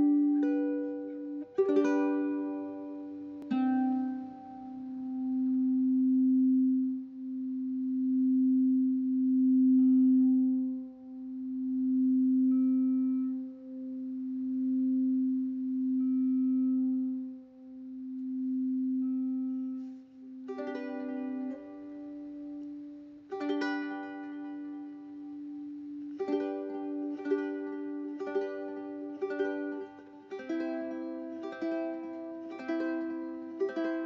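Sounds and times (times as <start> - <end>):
ukulele strumming: 0.0 - 5.4, 19.8 - 34.0
plucked string notes: 0.0 - 5.8, 19.0 - 34.0
low pulsing tone: 0.0 - 34.0.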